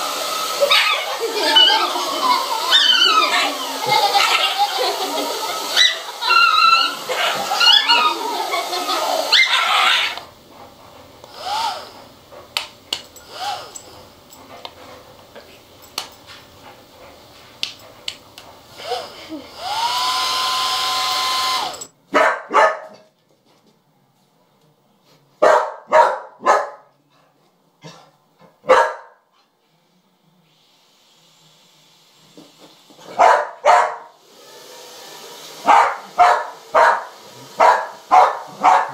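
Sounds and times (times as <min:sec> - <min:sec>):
hair dryer blowing: 0:00.0 - 0:21.9, 0:30.4 - 0:33.3, 0:33.9 - 0:38.9
dog barking: 0:22.1 - 0:23.1, 0:25.4 - 0:26.9, 0:28.6 - 0:29.2, 0:33.1 - 0:34.1, 0:35.6 - 0:38.9.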